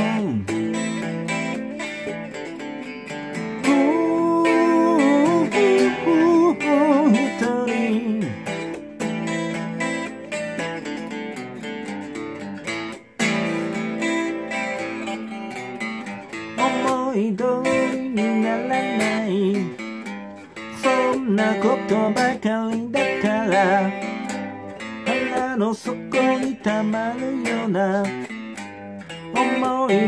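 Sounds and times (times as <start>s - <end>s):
man singing: 0.0s - 0.8s, 3.6s - 8.8s, 16.5s - 30.0s
electric guitar strummed chords: 0.0s - 30.0s.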